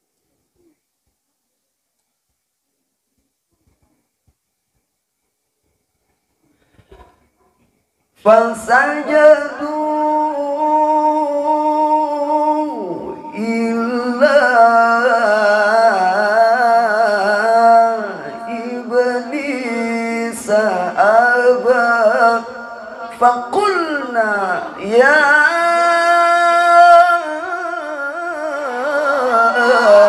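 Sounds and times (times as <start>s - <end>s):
man reciting melodically: 8.2s - 30.0s.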